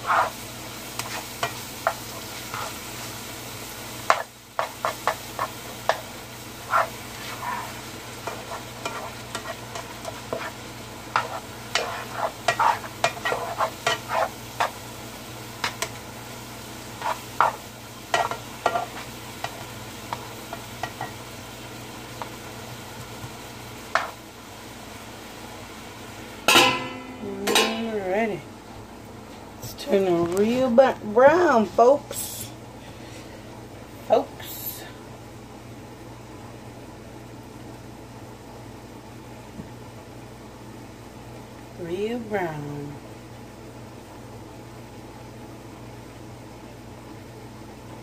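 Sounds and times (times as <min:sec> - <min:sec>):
meat sizzling in a frying pan: 0:00.0 - 0:26.5
plastic spoon scraping a pan: 0:06.7 - 0:09.6, 0:11.2 - 0:14.3.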